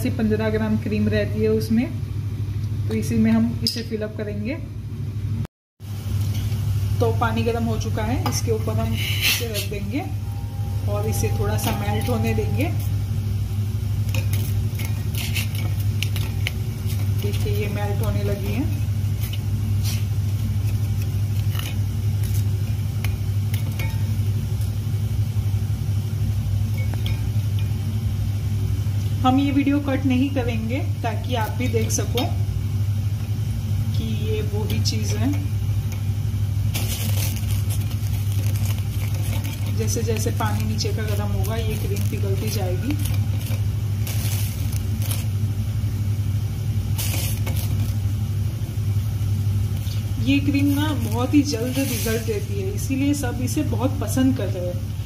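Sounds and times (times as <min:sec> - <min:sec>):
steady low hum: 0:00.0 - 0:55.0
spoon scraping metal: 0:08.8 - 0:13.0, 0:14.0 - 0:24.2, 0:36.7 - 0:45.4, 0:47.0 - 0:48.0
spoon stirring in metal bowl: 0:14.0 - 0:24.8, 0:26.6 - 0:27.9, 0:34.4 - 0:45.4, 0:47.0 - 0:48.0.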